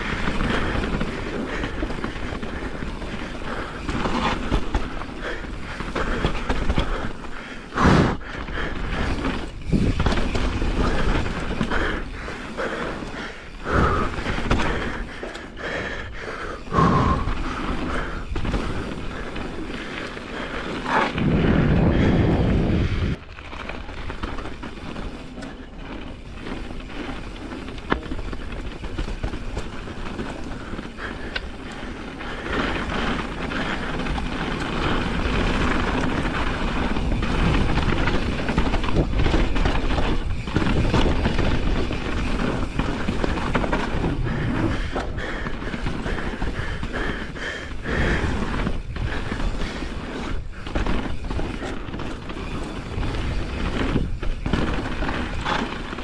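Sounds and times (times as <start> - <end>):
bike rattling: 0.0 - 56.0
bike tyres rolling on dirt: 0.0 - 56.0
wind rushing over microphone: 20.8 - 23.3.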